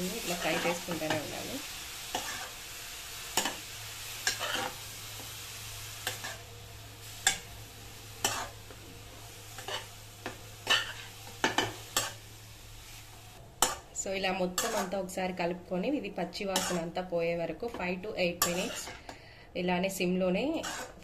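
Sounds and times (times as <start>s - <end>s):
carrots sizzling in pan: 0.0s - 19.2s, 20.4s - 21.0s
spoon scraping metal pan: 8.2s - 8.5s, 10.6s - 12.2s, 14.5s - 15.0s, 16.5s - 16.9s, 18.4s - 19.1s, 20.5s - 21.0s.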